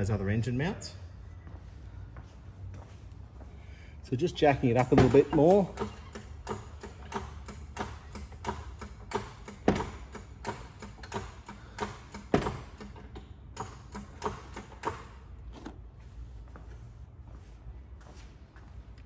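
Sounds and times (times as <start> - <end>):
loud clunks: 4.8 - 15.2
floor jack pumping clicks: 4.8 - 15.8.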